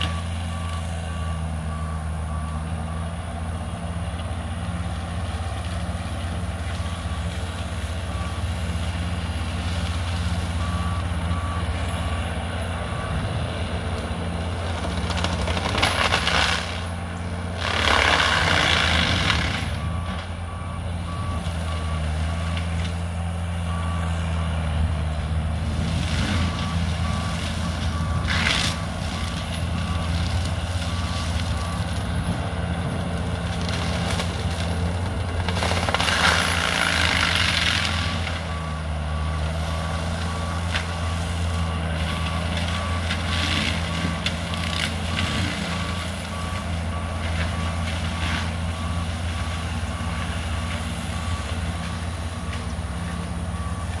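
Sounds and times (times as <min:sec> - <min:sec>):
mulcher engine running under load: 0:00.0 - 0:54.0.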